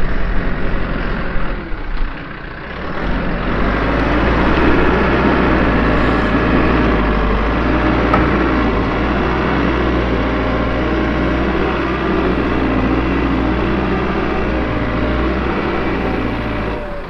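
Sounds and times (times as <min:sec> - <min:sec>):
diesel engine running: 0:00.0 - 0:17.0
loader bucket digging: 0:03.1 - 0:17.0.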